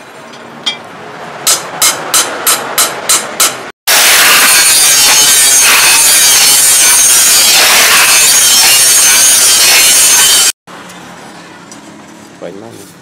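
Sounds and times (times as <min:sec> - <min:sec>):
angle grinder cutting steel: 0:03.9 - 0:10.6.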